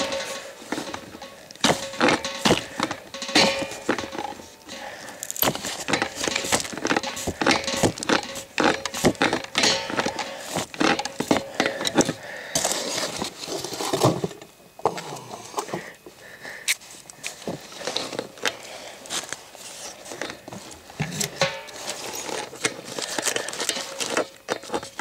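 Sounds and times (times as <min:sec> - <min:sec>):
pipe wrench clicking and scraping: 0:00.0 - 0:13.1, 0:21.1 - 0:25.0.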